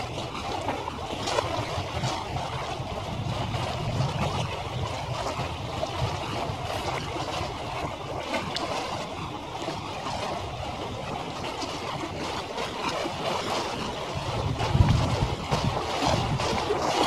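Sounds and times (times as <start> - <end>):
dense rumbling noise: 1.8 - 8.0, 14.0 - 16.7.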